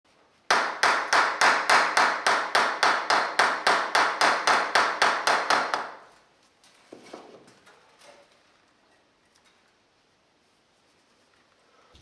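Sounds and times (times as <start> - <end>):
hammer knocking on masonry: 0.5 - 6.0.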